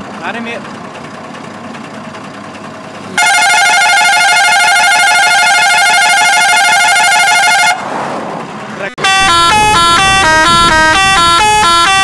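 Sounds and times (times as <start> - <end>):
warbling truck horn: 3.2 - 7.9, 9.0 - 12.0.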